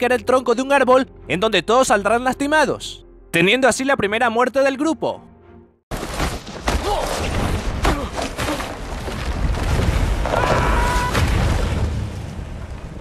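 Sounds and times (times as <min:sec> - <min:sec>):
tree trunk crashing down: 0:05.9 - 0:13.0
man screaming: 0:10.3 - 0:11.2.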